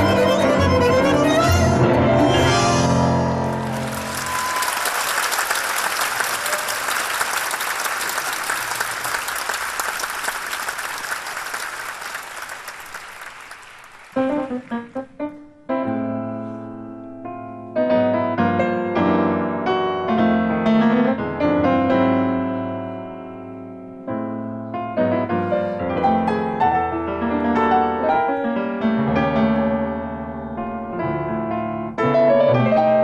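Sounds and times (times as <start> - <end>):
audience applauding: 3.3 - 15.1
grand piano solo: 14.1 - 33.0.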